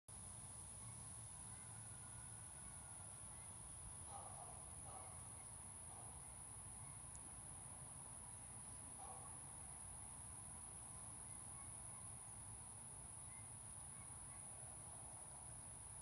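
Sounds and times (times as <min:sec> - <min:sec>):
distant bird calls: 0:00.8 - 0:07.2.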